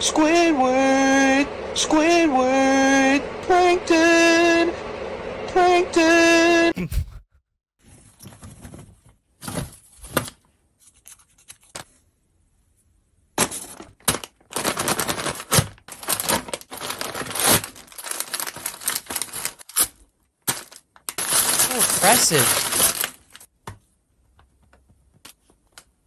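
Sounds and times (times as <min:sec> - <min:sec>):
paper bags crinkling: 0:13.4 - 0:23.5
tissue paper tearing: 0:13.7 - 0:23.5.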